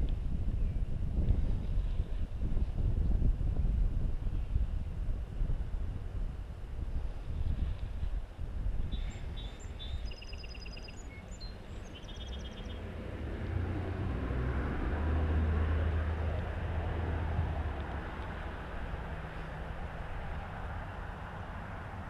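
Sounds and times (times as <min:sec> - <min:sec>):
small bird chirping and trilling: 0:08.9 - 0:12.8
road vehicle passing: 0:09.1 - 0:22.0.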